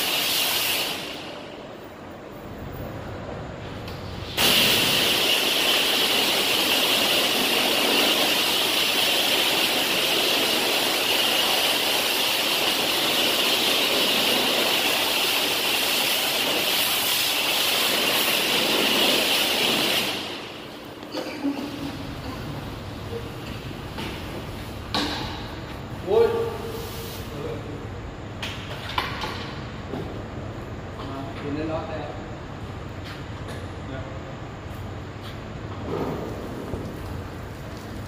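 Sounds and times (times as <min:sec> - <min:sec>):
pressure washer spraying water: 0:00.0 - 0:01.6, 0:04.2 - 0:22.7.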